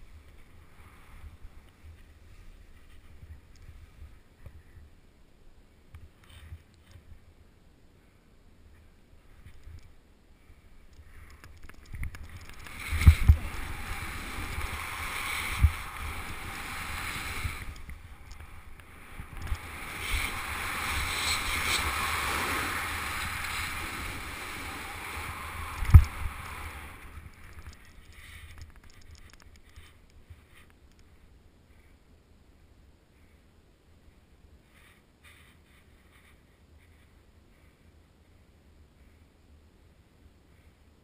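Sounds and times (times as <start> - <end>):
skis hissing on snow: 12.6 - 27.6.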